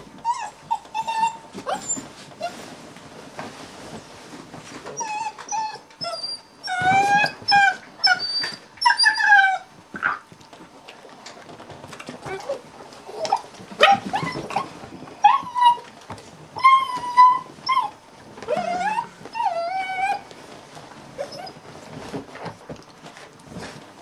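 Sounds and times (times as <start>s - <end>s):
puppy whimpering and yelping: 0.2s - 2.6s, 5.0s - 10.2s, 12.3s - 20.3s, 21.2s - 21.6s.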